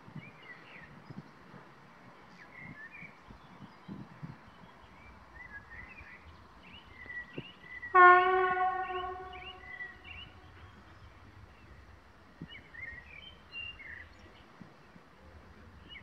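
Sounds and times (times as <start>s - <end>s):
birds chirping: 2.1s - 15.0s
locomotive horn: 7.9s - 10.5s.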